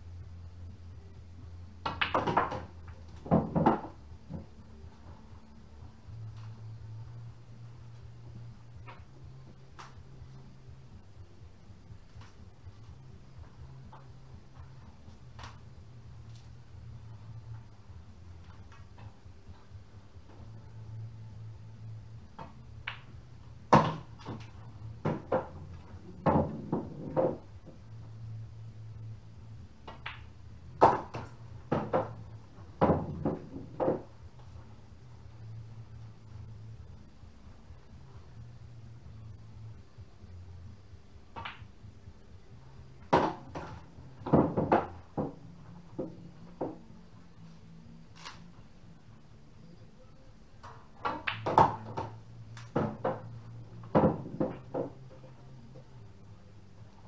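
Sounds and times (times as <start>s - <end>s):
cue striking ball: 1.8s - 4.5s, 23.7s - 27.5s, 29.8s - 34.1s, 41.3s - 41.7s, 43.0s - 46.8s, 51.0s - 55.0s
sharp wooden knocks: 1.8s - 4.5s, 23.7s - 27.5s, 30.8s - 32.2s, 32.8s - 34.1s, 43.1s - 45.4s, 51.0s - 53.3s, 53.9s - 55.0s
pool balls clicking: 1.8s - 5.4s, 12.0s - 17.8s, 22.3s - 27.9s, 29.8s - 36.4s, 41.3s - 41.8s, 42.6s - 47.3s, 50.6s - 55.9s.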